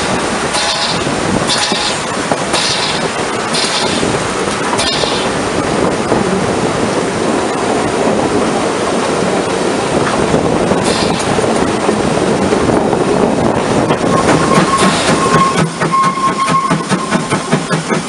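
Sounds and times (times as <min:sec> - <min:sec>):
steam hissing: 0:00.0 - 0:06.0, 0:10.7 - 0:11.8, 0:13.2 - 0:18.0
steam train rumbling and rattling: 0:00.0 - 0:18.0.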